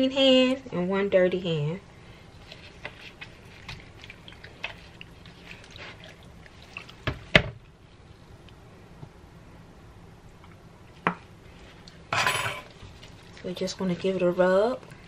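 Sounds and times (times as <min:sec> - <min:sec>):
wet squelches and ticks: 0:02.2 - 0:07.8, 0:12.8 - 0:13.6.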